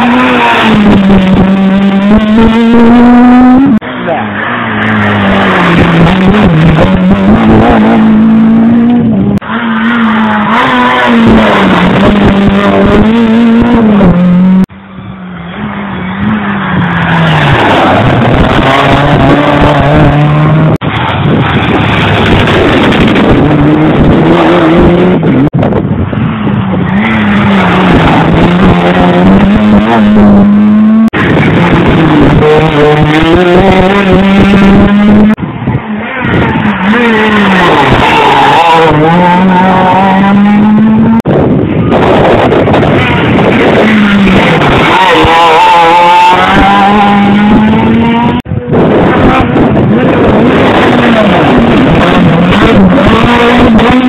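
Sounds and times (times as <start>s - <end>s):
gear changes: 0.0s - 54.0s
rally car engines revving: 0.0s - 54.0s.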